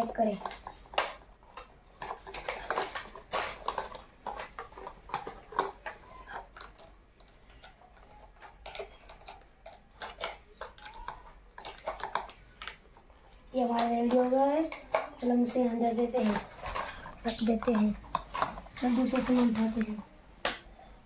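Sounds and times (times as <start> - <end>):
plastic toy parts clicking: 0.1 - 15.4.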